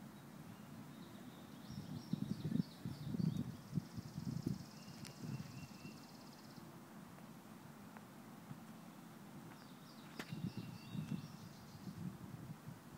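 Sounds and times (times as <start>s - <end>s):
birds trilling and chirping: 0.6s - 6.7s, 8.9s - 12.1s.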